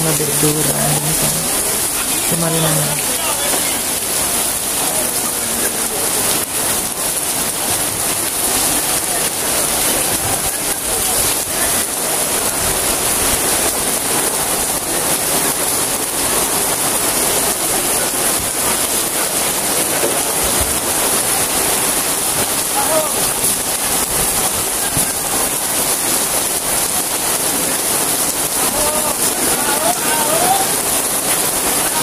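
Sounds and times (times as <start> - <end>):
heavy rain pouring: 0.0 - 32.0.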